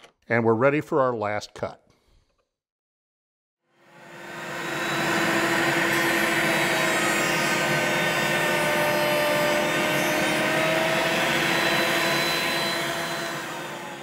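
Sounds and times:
router cutting wood: 3.7 - 14.0.

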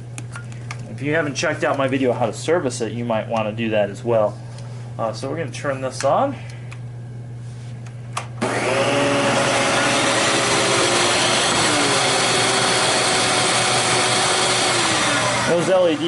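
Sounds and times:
vacuum cleaner motor whine: 8.4 - 16.0.

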